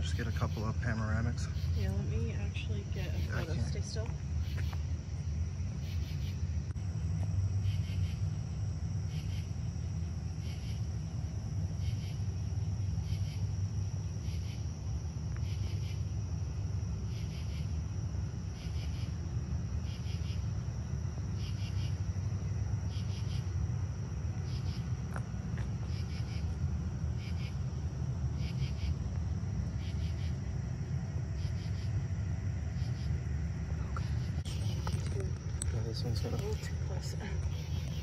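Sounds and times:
insect high trill: 0.0 - 38.0
insect pulsed chirp: 0.0 - 38.0
low steady rumble: 0.0 - 38.0.

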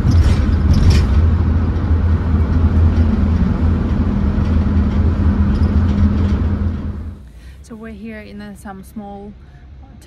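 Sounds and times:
car tyre and engine rumble: 0.0 - 8.2.

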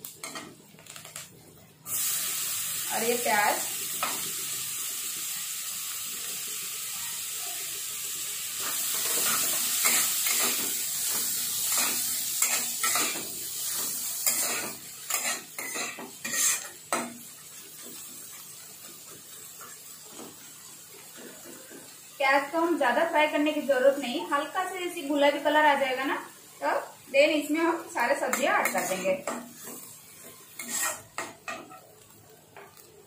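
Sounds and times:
onions sizzling in a pan: 0.0 - 33.0
spatula scraping and stirring: 11.6 - 17.1, 28.2 - 32.0.

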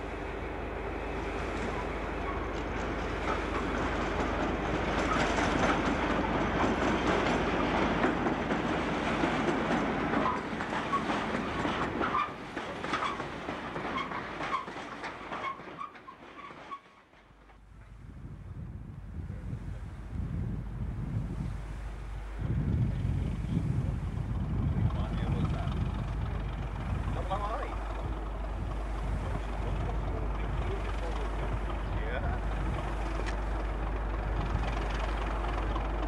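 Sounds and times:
diesel locomotive engine: 0.0 - 36.0
wheel clicks over rail joints: 2.6 - 17.6.

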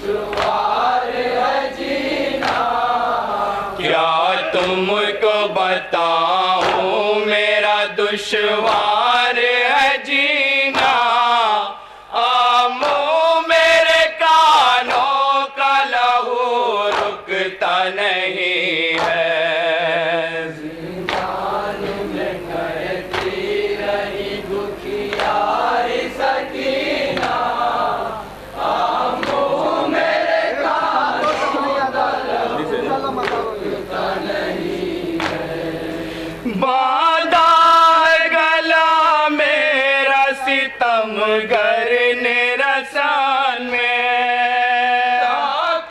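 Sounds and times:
men chanting in unison: 0.0 - 45.9
hands slapping chests: 0.3 - 0.7, 2.4 - 2.7, 6.6 - 7.0, 8.6 - 9.0, 16.9 - 17.2, 18.9 - 19.3, 21.0 - 22.2, 23.0 - 23.6, 25.0 - 25.5, 27.1 - 27.4, 29.1 - 29.5, 33.1 - 33.6, 35.2 - 35.5.

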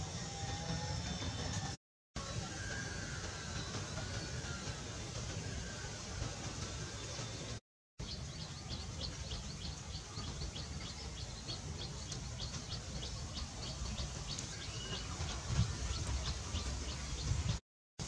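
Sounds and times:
low outdoor rumble: 0.0 - 17.6
small bird chirping: 8.0 - 17.4.

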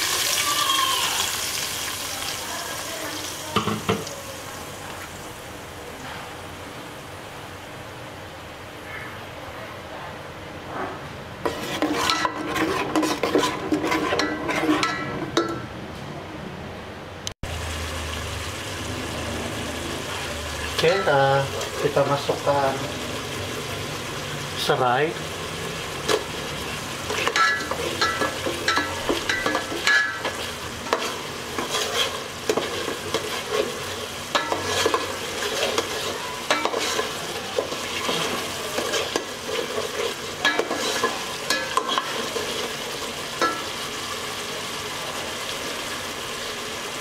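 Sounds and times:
paste sizzling in oil: 0.0 - 5.4, 11.4 - 15.2, 17.4 - 47.0
ladle scraping metal pot: 11.4 - 15.6, 27.0 - 43.7.

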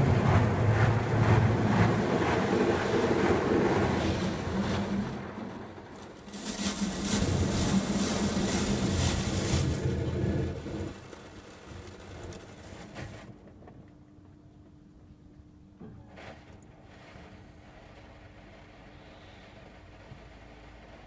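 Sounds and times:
spraying water: 0.0 - 12.0
car wash brushes scrubbing: 0.0 - 13.0
steady hum: 0.0 - 15.8.

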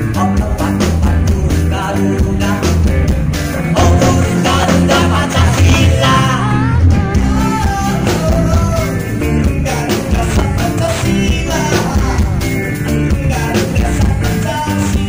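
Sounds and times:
bass guitar: 0.0 - 15.0
drums: 0.0 - 15.0
electric guitars: 0.0 - 15.0.

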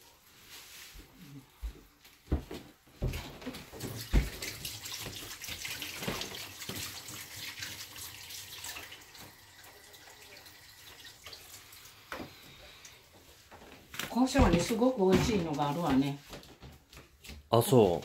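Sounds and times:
tap running into sink: 3.8 - 7.6.

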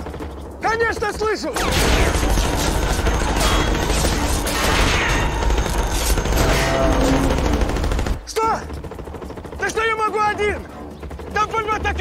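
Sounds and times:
dense gunfire: 1.0 - 8.2.

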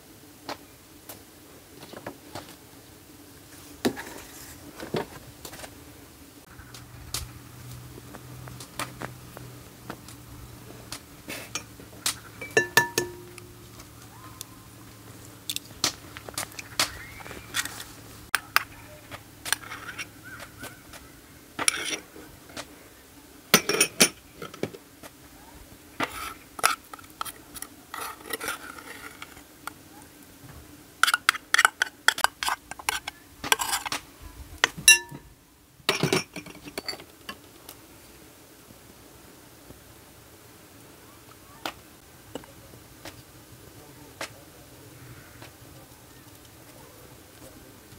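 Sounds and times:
faint steady hum: 0.0 - 47.9
utensils clinking on dishes: 12.4 - 13.4, 23.6 - 24.2, 34.9 - 35.2, 35.9 - 37.0.

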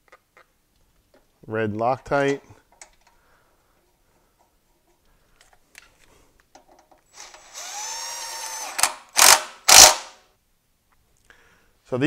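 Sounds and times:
cordless driver whining: 7.2 - 10.0.

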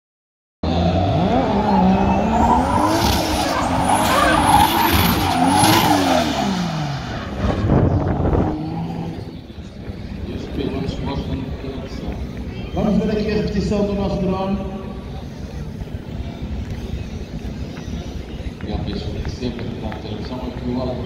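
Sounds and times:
car engines revving: 0.6 - 21.0
tyres screeching: 1.5 - 7.9.

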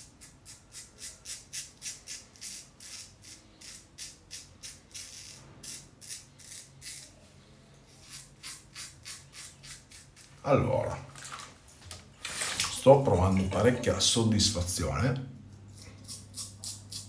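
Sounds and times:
razor scraping stubble: 0.0 - 7.2, 7.9 - 10.4, 15.7 - 17.0.

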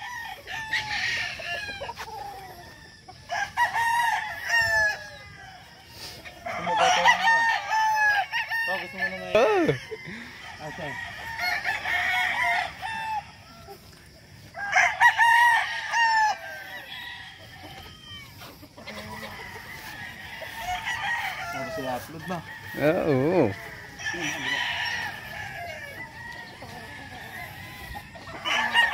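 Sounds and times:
roosters crowing: 0.0 - 28.9.

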